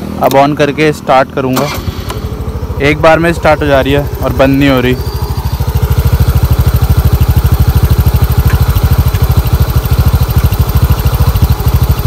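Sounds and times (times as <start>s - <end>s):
scooter engine idling: 0.0s - 12.0s.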